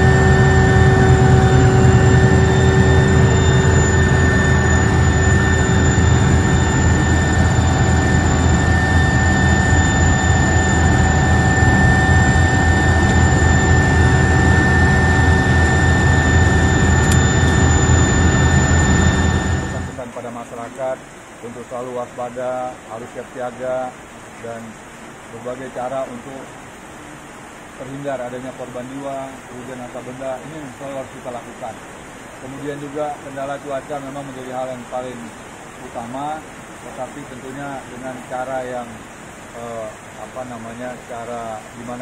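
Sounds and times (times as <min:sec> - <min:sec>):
helicopter engine and rotor drone: 0:00.0 - 0:20.0
high engine whine: 0:00.0 - 0:20.1.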